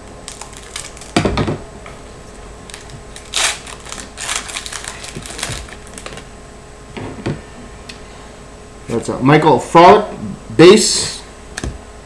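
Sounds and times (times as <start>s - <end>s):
foil pack crinkling: 0.2s - 1.2s, 2.6s - 6.3s.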